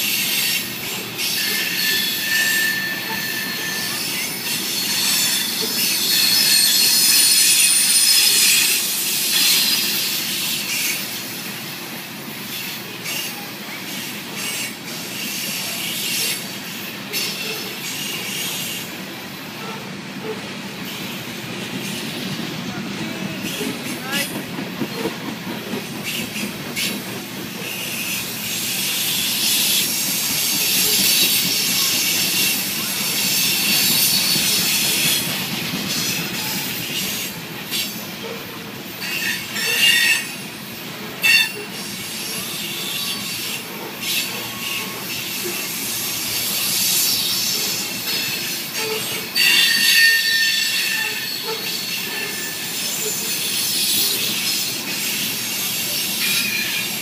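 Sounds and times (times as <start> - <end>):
steel wheels rolling on rail: 0.0 - 57.0
high-pitched wheel squeal: 1.2 - 11.0, 39.0 - 40.4, 41.2 - 45.7, 46.5 - 54.7.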